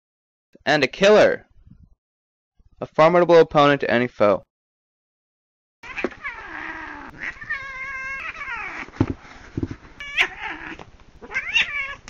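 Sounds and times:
cat yowling and meowing: 5.8s - 8.9s, 10.0s - 12.0s
dull thumps: 8.9s - 9.9s.

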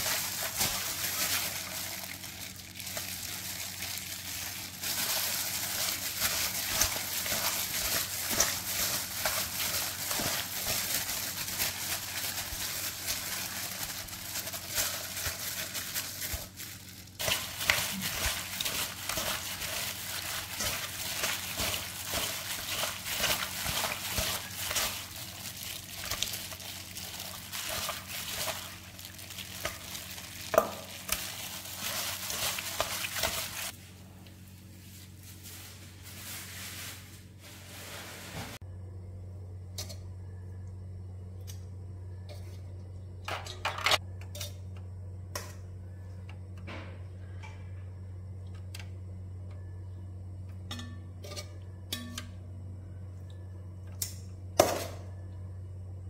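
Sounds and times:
wet squishing of meat in marinade: 0.0s - 33.8s.

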